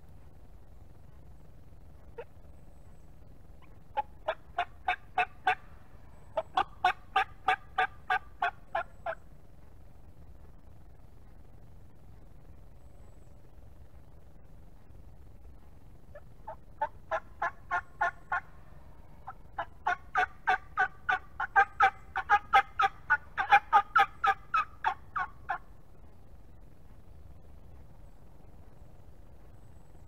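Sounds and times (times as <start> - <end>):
turkey yelping: 2.2 - 2.4, 3.6 - 9.2, 16.1 - 18.6, 19.2 - 25.7.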